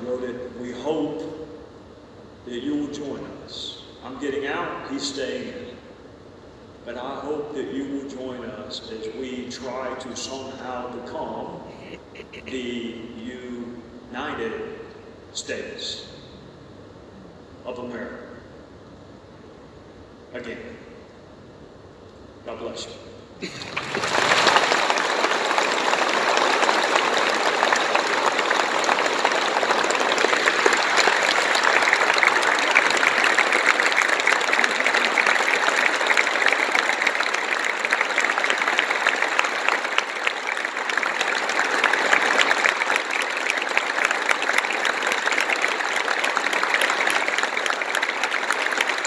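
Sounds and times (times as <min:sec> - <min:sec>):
large audience applauding: 0:23.4 - 0:49.0.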